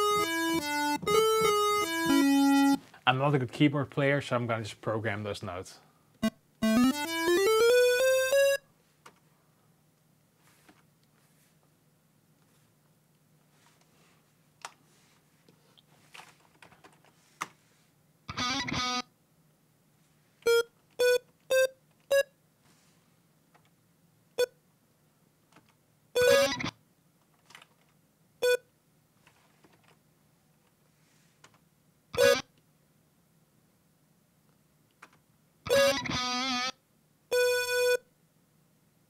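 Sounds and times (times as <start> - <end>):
synthesizer notes: 0.0 - 2.8, 6.2 - 8.6, 32.2 - 32.4, 35.7 - 36.7.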